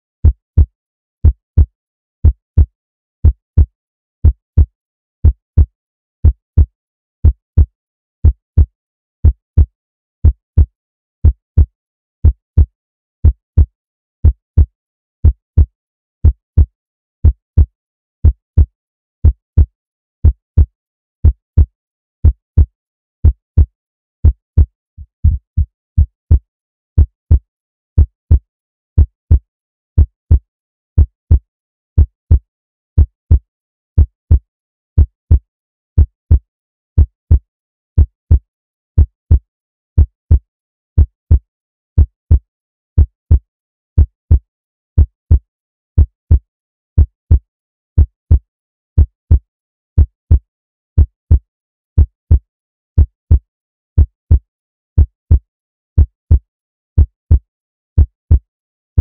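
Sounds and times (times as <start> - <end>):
heartbeat thumps: 24.3 - 26.4.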